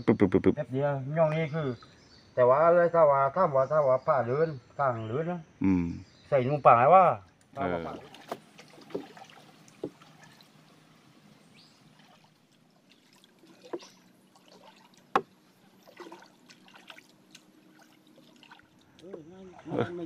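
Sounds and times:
water trickling and dripping: 0:07.4 - 0:20.0.

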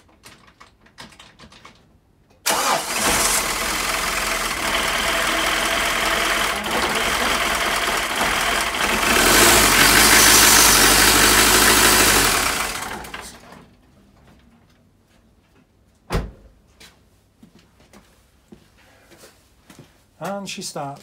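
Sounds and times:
diesel engine running: 0:02.5 - 0:13.5.

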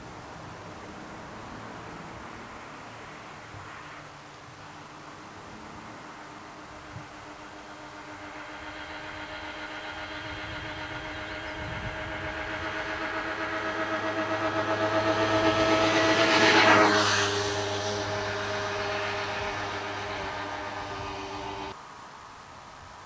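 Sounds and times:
vehicle passing by: 0:00.0 - 0:21.8.

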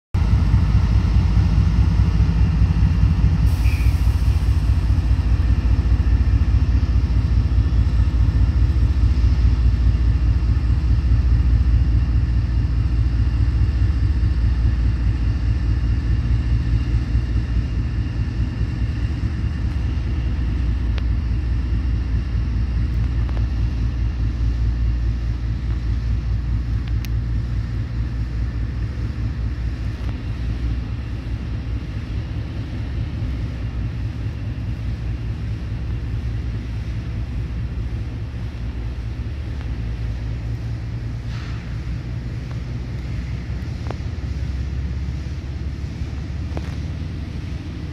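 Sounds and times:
diesel locomotive engine rumble: 0:00.1 - 0:47.9
brief hiss: 0:03.4 - 0:04.8, 0:41.2 - 0:41.9.

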